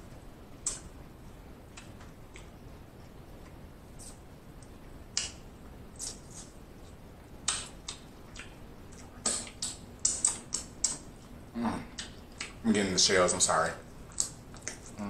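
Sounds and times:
chewing crab shell crackles: 0:14.0 - 0:15.0.

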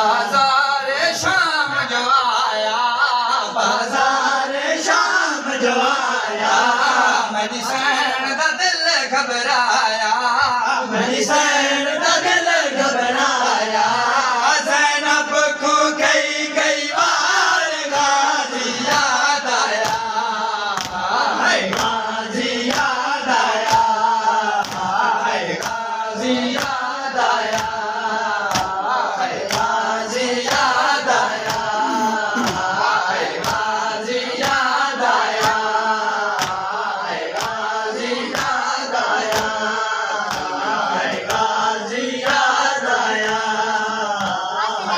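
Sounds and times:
men chanting a lament: 0:00.0 - 0:44.9
hands beating on chests: 0:36.3 - 0:36.6.

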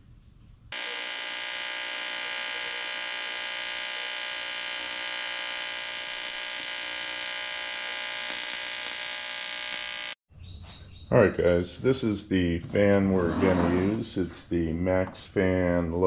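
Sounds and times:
welding arc buzzing: 0:00.7 - 0:10.2.

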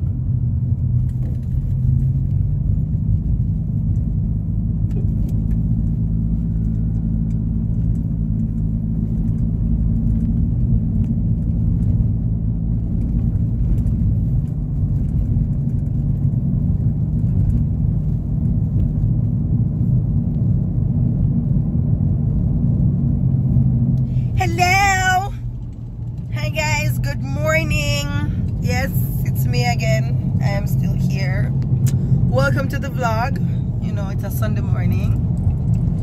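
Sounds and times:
car engine hum: 0:00.0 - 0:36.0.

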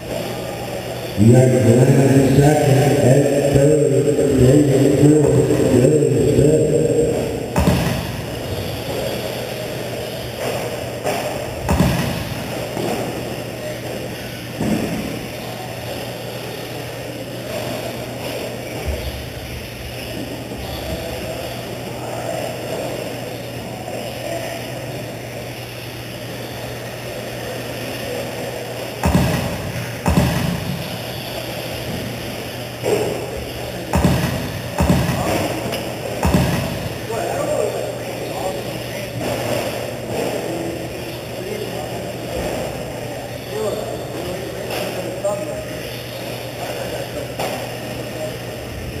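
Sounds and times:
thuds: 0:07.6 - 0:08.3, 0:11.1 - 0:12.9, 0:29.0 - 0:30.8, 0:33.9 - 0:35.6, 0:36.2 - 0:36.9.

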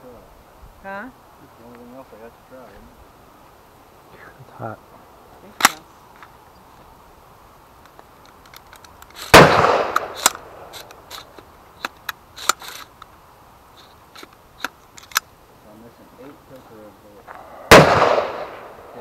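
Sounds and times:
small sharp clicks and cracks: 0:07.8 - 0:13.2, 0:13.8 - 0:15.3
loud gunshot with echo: 0:09.3 - 0:10.2, 0:17.7 - 0:18.9.

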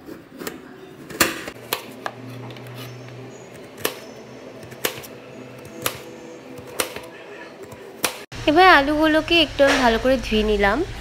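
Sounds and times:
knife slicing potato: 0:00.0 - 0:07.1.

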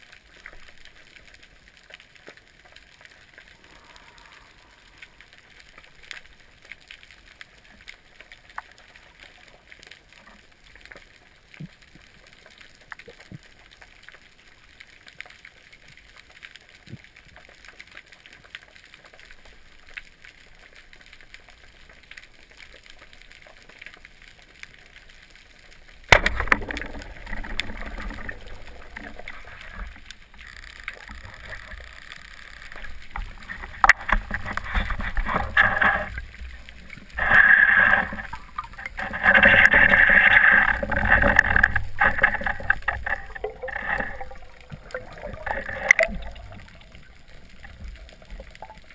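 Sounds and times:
underwater clicks and crackles: 0:00.0 - 0:48.9
water sloshing: 0:26.1 - 0:48.9.

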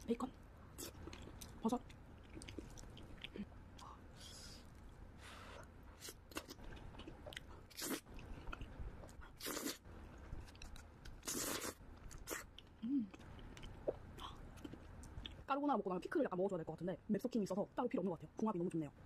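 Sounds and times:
wet chewing: 0:00.8 - 0:04.0
slurping noodles: 0:09.4 - 0:09.8, 0:11.2 - 0:12.5.

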